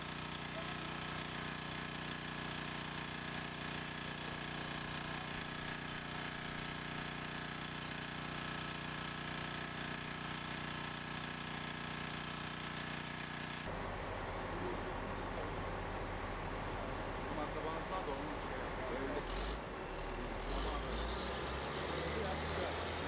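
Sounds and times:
small engine running: 0:00.0 - 0:13.7, 0:18.9 - 0:23.0.

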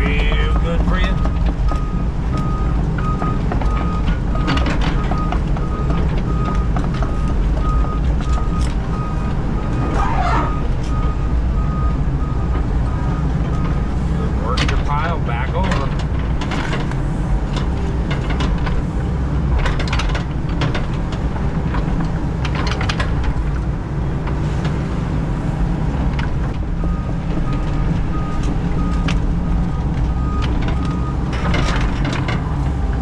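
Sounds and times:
excavator bucket clanking: 0:00.0 - 0:24.8, 0:25.9 - 0:33.0
excavator diesel engine running: 0:00.0 - 0:33.0.

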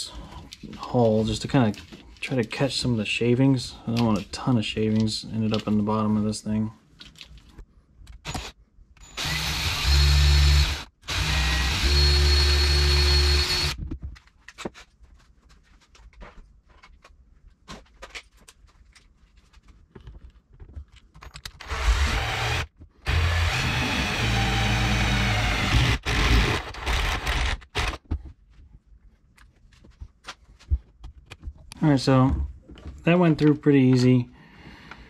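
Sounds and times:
electric drill boring: 0:08.3 - 0:13.8, 0:21.6 - 0:28.0.

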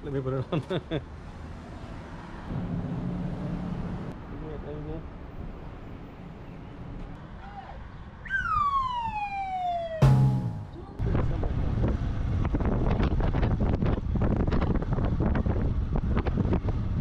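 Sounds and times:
siren-like falling tone: 0:08.3 - 0:10.8
wind buffeting microphone: 0:11.0 - 0:17.0.

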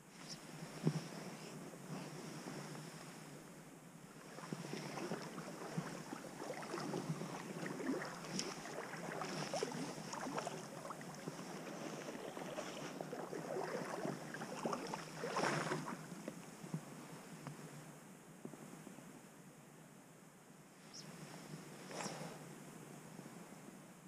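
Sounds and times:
creek water splashing around legs: 0:04.2 - 0:16.2.

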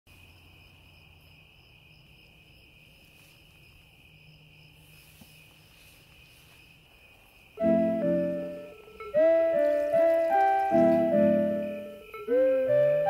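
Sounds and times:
crickets chirring: 0:00.1 - 0:13.0.

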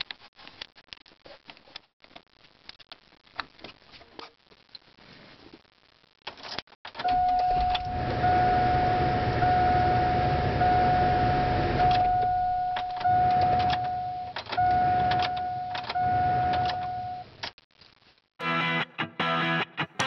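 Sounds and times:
ignition warning chime: 0:07.0 - 0:17.3
low rumble: 0:07.2 - 0:17.2.

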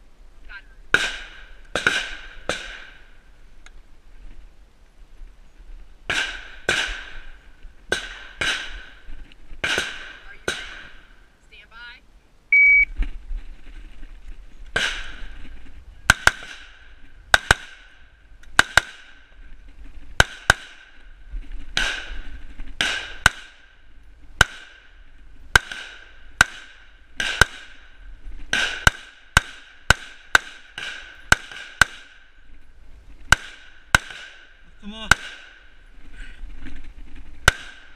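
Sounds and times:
rifle shots with echo: 0:00.9 - 0:03.1, 0:06.1 - 0:07.3, 0:07.9 - 0:09.0, 0:09.6 - 0:11.1, 0:16.1 - 0:18.0, 0:21.8 - 0:23.8, 0:24.4 - 0:27.9, 0:28.5 - 0:32.2, 0:33.3 - 0:35.8.

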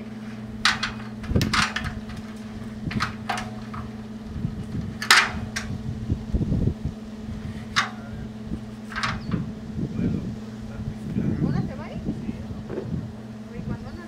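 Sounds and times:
leafy branches rustling and snapping: 0:00.0 - 0:05.9
steady low hum: 0:00.0 - 0:14.0.

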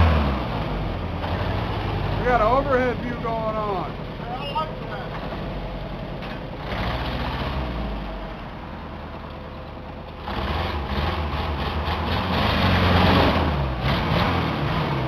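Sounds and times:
pickup engine idling: 0:08.0 - 0:10.3.

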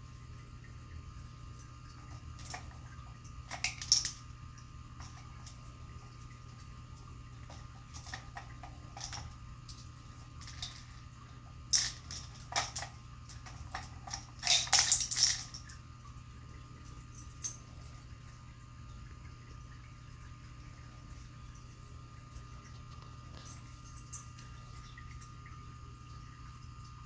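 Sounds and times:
plastic cylinders rattling: 0:03.5 - 0:04.2, 0:07.4 - 0:09.4, 0:10.4 - 0:11.0, 0:11.7 - 0:15.6.

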